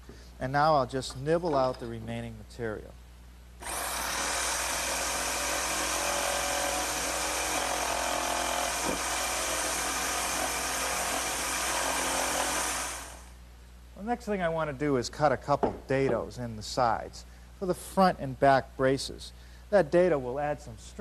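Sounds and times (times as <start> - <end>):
electric jigsaw cutting wood: 3.6 - 13.3.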